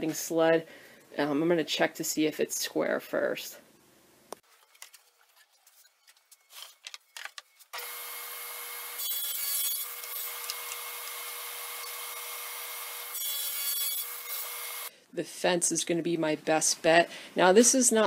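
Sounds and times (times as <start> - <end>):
saw blade cutting wood: 7.7 - 14.9
table saw whine: 7.8 - 14.9.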